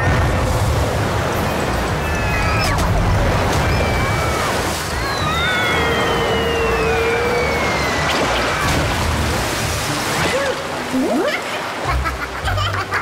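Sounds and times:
gushing water: 0.0 - 13.0
long falling whistle: 5.1 - 8.1.

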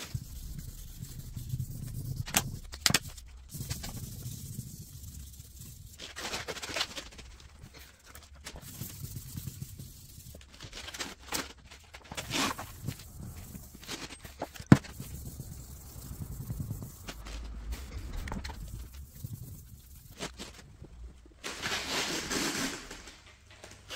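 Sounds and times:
hand rubbing car paint: 0.0 - 6.6, 7.8 - 10.8, 12.2 - 20.6.

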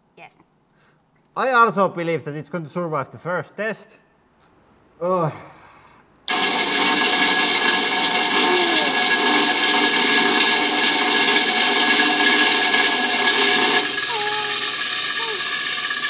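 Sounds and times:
grinder motor whine and rushing: 6.3 - 16.0.

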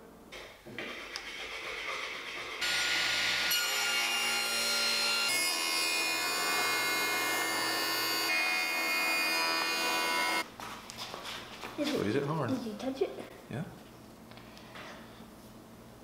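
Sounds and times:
jointer machine whine: 2.6 - 10.4.

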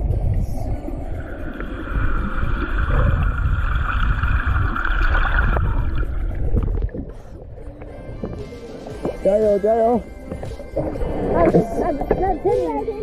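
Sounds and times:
steady high hum: 0.0 - 7.8
muffled underwater rush and rumble: 0.0 - 9.5, 10.6 - 13.0.

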